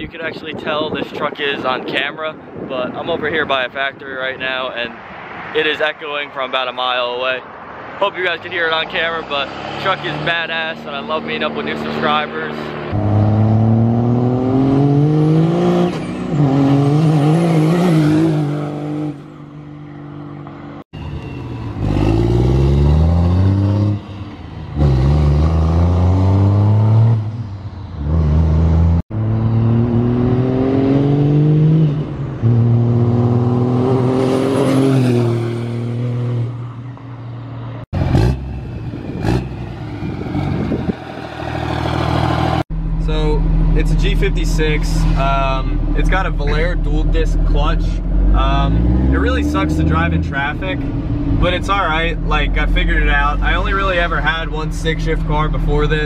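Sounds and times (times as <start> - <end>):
diesel pickup engine revving: 8.6 - 19.4, 21.6 - 36.6, 38.0 - 56.0.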